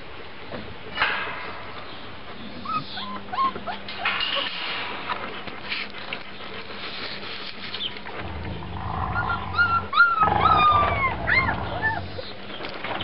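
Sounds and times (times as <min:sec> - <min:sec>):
puppies whimpering: 0:02.6 - 0:04.2, 0:08.8 - 0:12.6
low rumbling noise: 0:08.0 - 0:13.0.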